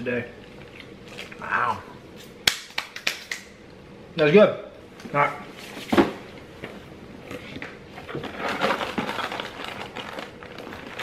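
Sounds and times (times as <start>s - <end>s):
snack wrappers rustling: 8.1s - 11.0s
cardboard box crinkling: 8.2s - 11.0s.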